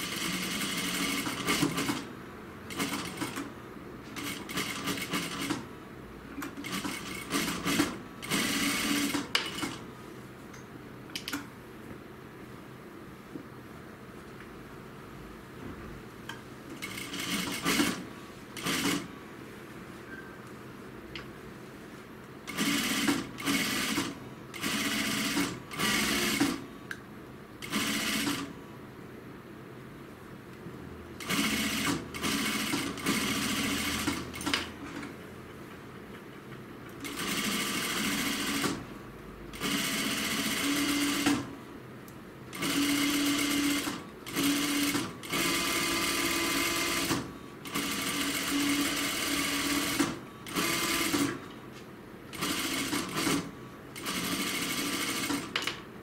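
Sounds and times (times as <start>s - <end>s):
sewing machine stitching: 0.0s - 2.1s, 2.7s - 3.5s, 4.2s - 5.7s, 6.5s - 9.8s, 16.8s - 19.1s, 22.5s - 26.6s, 27.6s - 28.5s, 31.2s - 34.7s, 37.0s - 38.8s, 39.5s - 41.5s, 42.5s - 51.4s, 52.3s - 55.6s.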